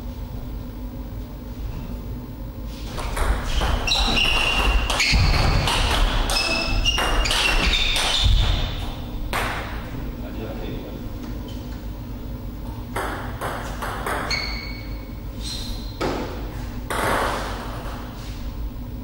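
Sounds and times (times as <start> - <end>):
shoes squeaking on floor: 2.8 - 9.3, 14.3 - 16.1.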